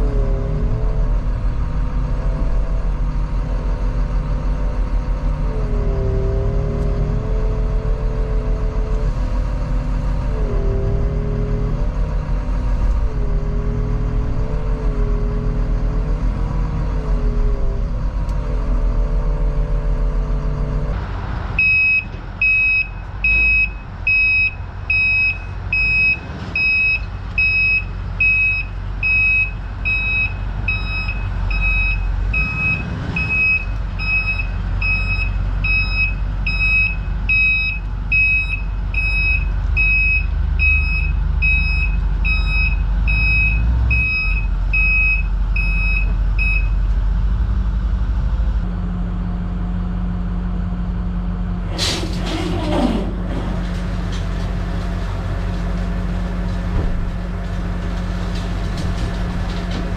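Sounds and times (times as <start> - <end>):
diesel engine low rumble: 0.0 - 59.9
truck backup alarm beeping: 21.6 - 46.9.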